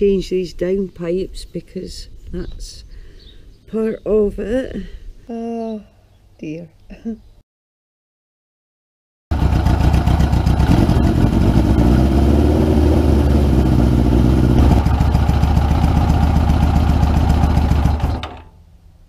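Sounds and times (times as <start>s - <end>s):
motorcycle engine running: 9.3s - 18.5s.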